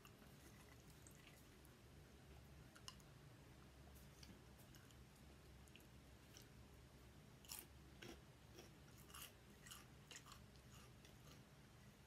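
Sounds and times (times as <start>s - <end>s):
potato chips crunching: 7.4s - 11.4s.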